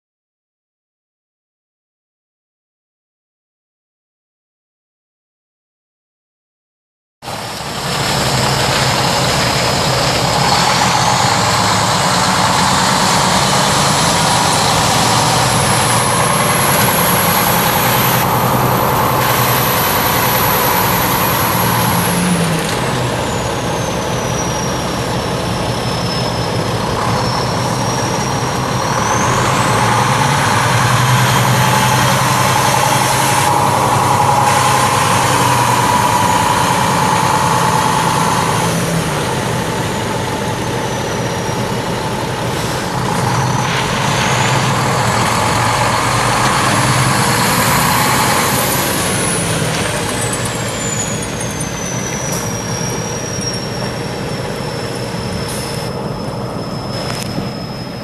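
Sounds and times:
diesel truck engine running: 7.2 - 58.0
thin high turbo whistle: 23.1 - 58.0.

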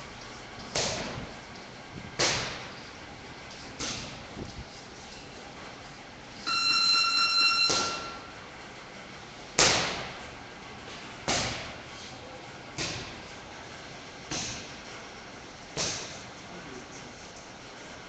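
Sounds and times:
punches smacking focus pads: 0.7 - 1.2, 2.2 - 2.7, 9.6 - 10.2, 11.2 - 11.8, 12.7 - 13.2, 15.7 - 16.2
electronic timer buzzer: 6.4 - 8.4.

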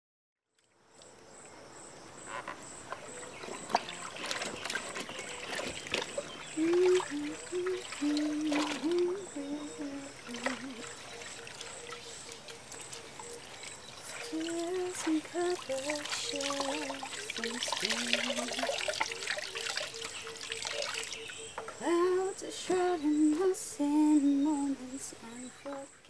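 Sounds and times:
water splashing and sloshing: 0.6 - 26.0
low wavering tone: 6.4 - 12.4.

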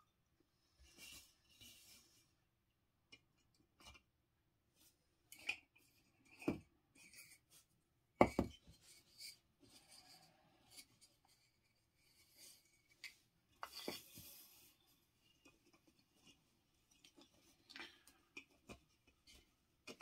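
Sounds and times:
light scraping and sliding: 8.7 - 16.4.

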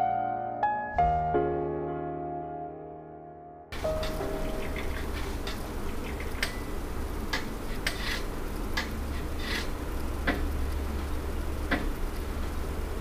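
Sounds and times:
steady low hum: 3.8 - 13.0.

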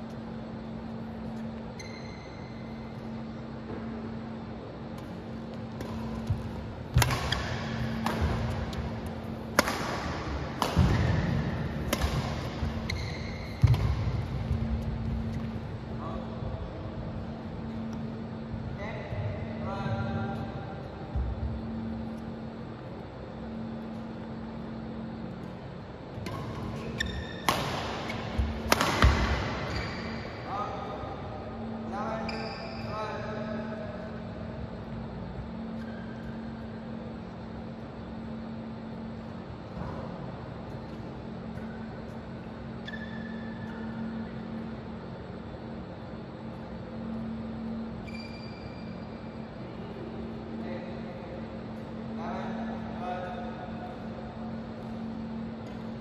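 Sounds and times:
steady hum: 0.0 - 56.0
shoe squeak: 1.7 - 2.8, 12.6 - 15.6, 26.3 - 28.6, 29.5 - 30.4, 32.2 - 33.0, 35.8 - 36.2, 42.7 - 44.3, 48.0 - 49.1
rackets hitting shuttlecock: 5.0 - 15.6, 26.1 - 30.4.

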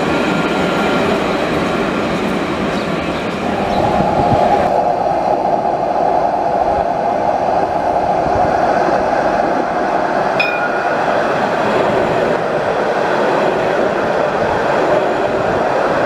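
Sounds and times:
tram rolling on rails: 0.0 - 16.0
brief high ring: 10.4 - 11.0.

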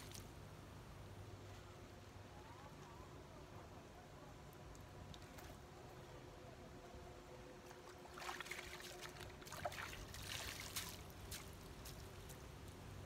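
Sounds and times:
water splashing and dripping: 8.0 - 12.1.

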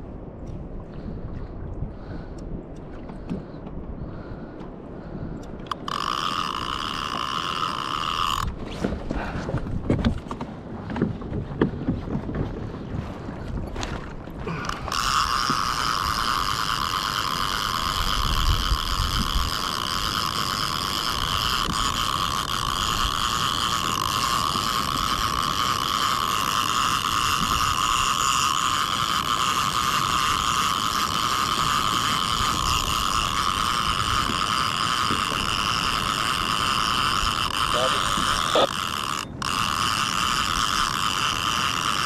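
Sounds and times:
steady mechanical whine: 14.6 - 42.0.

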